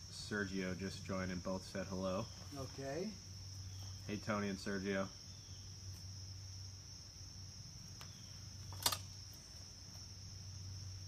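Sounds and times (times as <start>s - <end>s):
insects chirring: 0.0s - 11.0s
sharp click: 8.7s - 9.1s.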